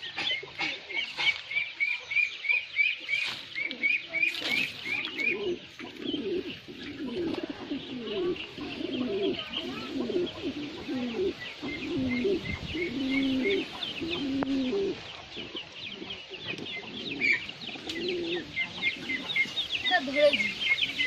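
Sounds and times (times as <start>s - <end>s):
birds chirping: 0.0s - 21.0s
pigeons cooing: 0.0s - 21.0s.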